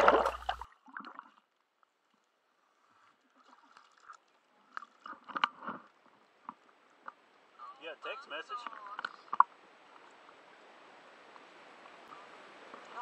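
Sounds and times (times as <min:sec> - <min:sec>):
water splashes and knocks: 0:00.0 - 0:01.5, 0:03.4 - 0:07.5, 0:08.6 - 0:10.4.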